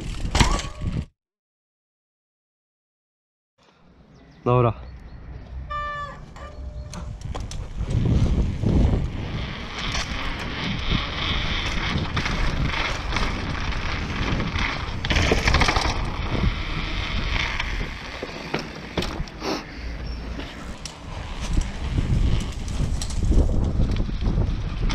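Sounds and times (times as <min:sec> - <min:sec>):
bike rattling: 0:00.0 - 0:01.1, 0:06.0 - 0:24.9
bike tyres rumbling on cobblestones: 0:00.0 - 0:01.1, 0:06.6 - 0:24.9.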